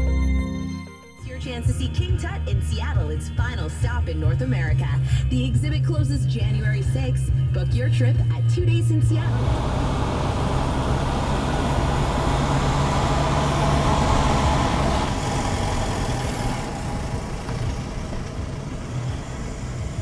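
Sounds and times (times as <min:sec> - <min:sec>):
car engine hum: 0:09.1 - 0:20.0
road noise hiss: 0:09.3 - 0:20.0.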